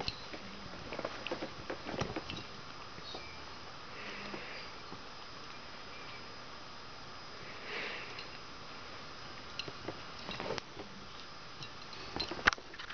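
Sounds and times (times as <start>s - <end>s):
faint steady hiss: 0.0s - 12.9s
breathy sniff: 3.9s - 4.8s, 7.4s - 8.2s.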